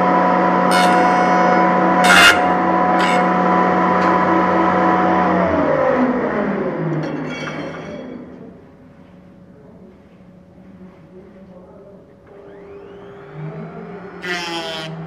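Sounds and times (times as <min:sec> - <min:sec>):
cutter motor running and winding down: 0:00.0 - 0:07.0, 0:12.4 - 0:15.0.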